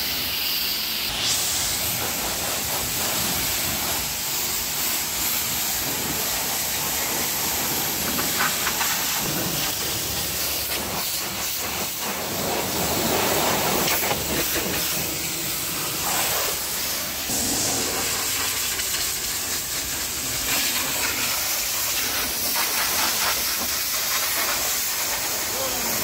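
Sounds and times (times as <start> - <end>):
pressure washer spraying car: 0.0 - 26.0.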